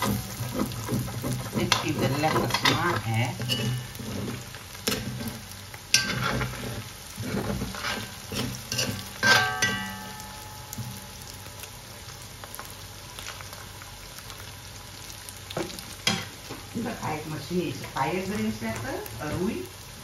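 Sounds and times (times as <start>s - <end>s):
spoon knocking the pan: 0.0s - 4.0s, 8.4s - 11.1s
metal spoon scraping a wok: 0.0s - 10.1s
oil sizzling: 0.0s - 20.0s.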